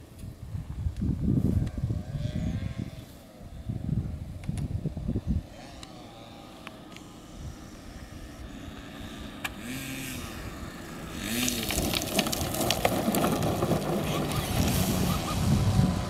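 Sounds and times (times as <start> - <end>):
model plane engine running: 5.5 - 11.6.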